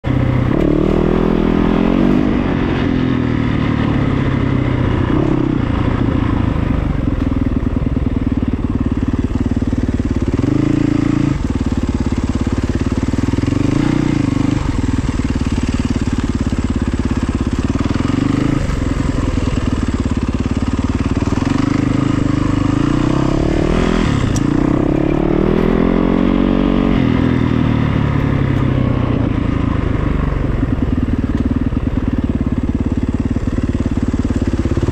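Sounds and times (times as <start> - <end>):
vehicle engine revving: 0.1 - 7.4, 10.1 - 30.6.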